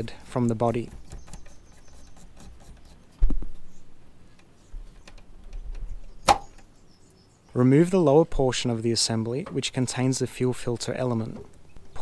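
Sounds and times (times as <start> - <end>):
sharp plastic click: 5.1 - 6.7.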